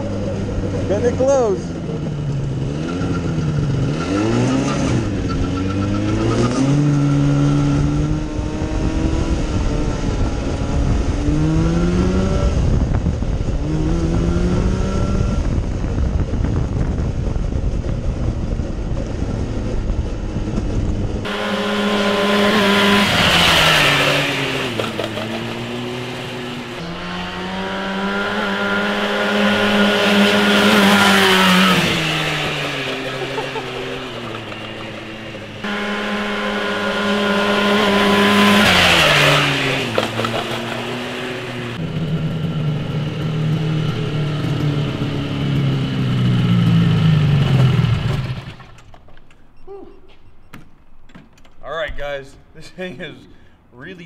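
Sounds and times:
go-kart engine revving: 0:00.0 - 0:49.4
wind rush on microphone: 0:07.3 - 0:21.3.

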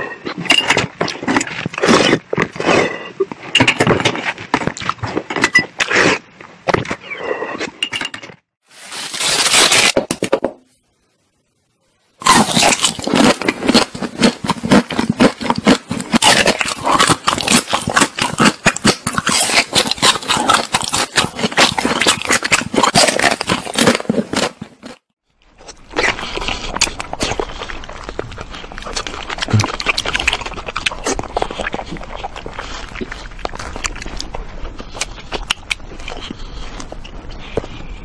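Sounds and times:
crunching and chewing ice cream: 0:00.0 - 0:07.8, 0:12.2 - 0:38.0.

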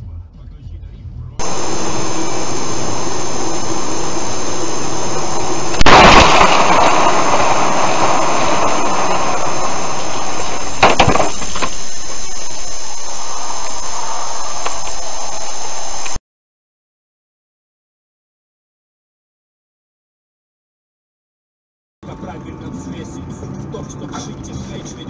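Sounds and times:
windshield crashing and shattering: 0:01.4 - 0:11.8
sharp crack: 0:01.4 - 0:15.4
road and wind noise in car: 0:22.0 - 0:25.0.

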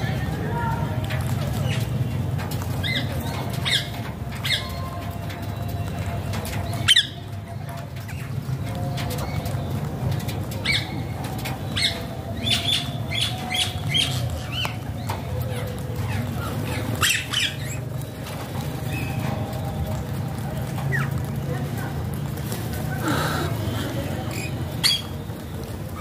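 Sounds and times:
parakeets squawking: 0:11.7 - 0:18.2, 0:23.0 - 0:25.2.

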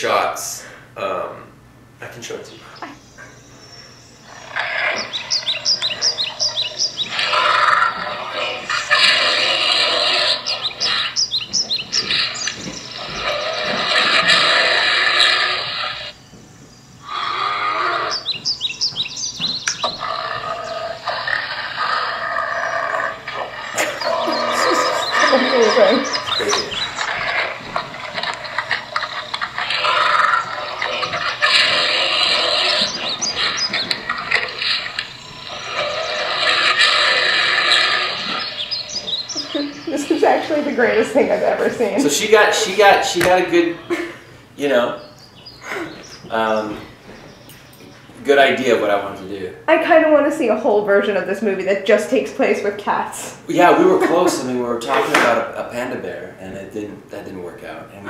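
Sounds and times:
scratchy noise with clicks: 0:23.3 - 0:38.5.

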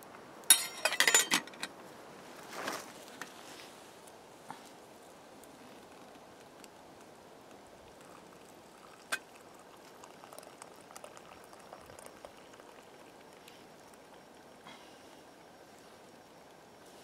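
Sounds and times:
water pouring into wooden cup: 0:07.5 - 0:14.6.

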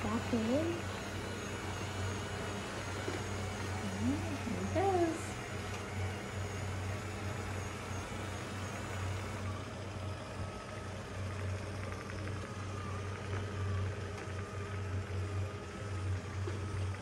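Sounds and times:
robot vacuum motor hum: 0:00.0 - 0:17.0.

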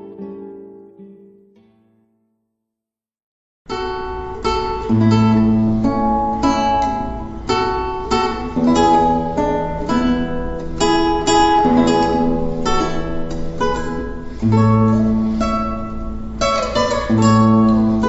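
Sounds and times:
acoustic guitar music: 0:00.0 - 0:02.5, 0:03.7 - 0:18.0.

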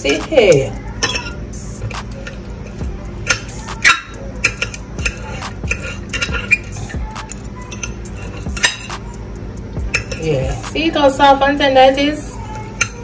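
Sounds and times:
forks clinking on a plate: 0:00.0 - 0:09.0, 0:09.8 - 0:10.4.

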